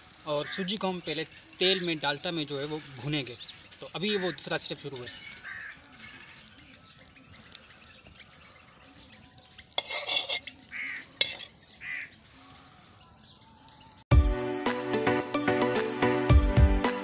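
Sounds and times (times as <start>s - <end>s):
crow cawing: 5.4s - 6.3s, 10.7s - 11.2s, 11.8s - 12.2s
metal ladle scraping wok: 9.6s - 11.7s
background music: 14.1s - 17.0s.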